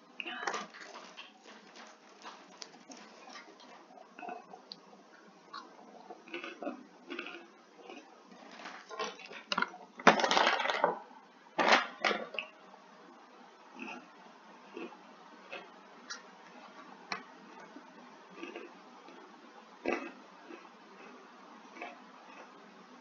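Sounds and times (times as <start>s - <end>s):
crunching snack puffs: 0.5s - 10.8s
snack bag crinkling: 0.6s - 4.9s, 5.6s - 10.9s.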